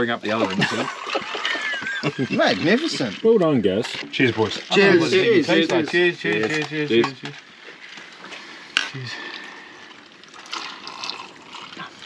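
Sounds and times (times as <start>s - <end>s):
men's voices: 0.0s - 0.9s, 1.7s - 7.4s
men sipping and swallowing: 0.3s - 12.0s.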